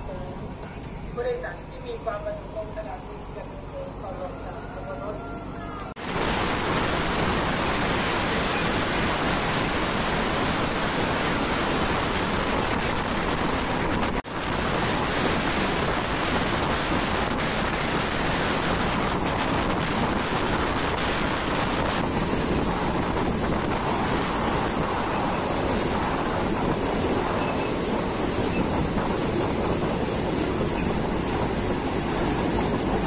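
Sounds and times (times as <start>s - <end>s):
train running on rails: 0.0s - 33.0s
wind rushing over microphone: 5.4s - 33.0s.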